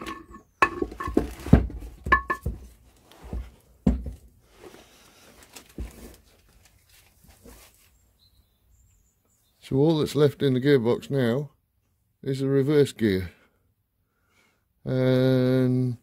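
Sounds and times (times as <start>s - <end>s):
metal parts knocking and clunking: 0.0s - 2.7s.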